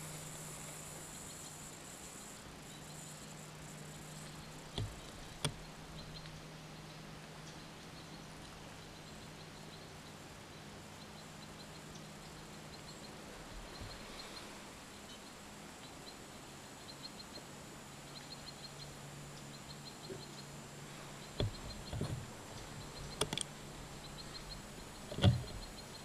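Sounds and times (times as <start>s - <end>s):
low hum: 0.0s - 26.0s
faint high ticks: 11.1s - 13.0s
sharp clicks: 21.4s - 23.5s.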